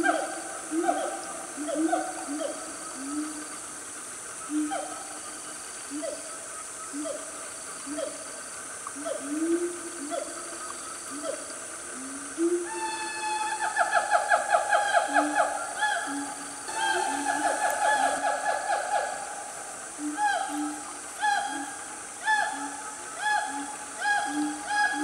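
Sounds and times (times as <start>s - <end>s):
gibbons whooping calls: 9.0s - 25.0s.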